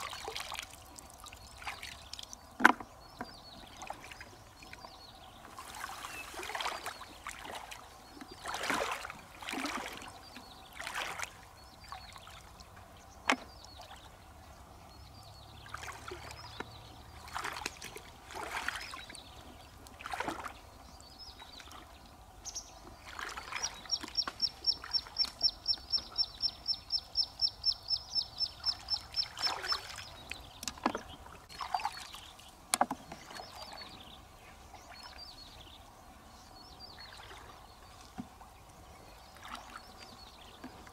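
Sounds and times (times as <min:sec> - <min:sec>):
water splashing and sloshing: 0:00.0 - 0:40.9.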